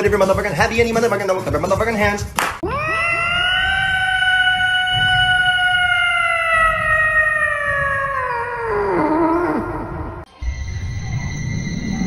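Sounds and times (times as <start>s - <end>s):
long howling call: 2.6s - 10.2s.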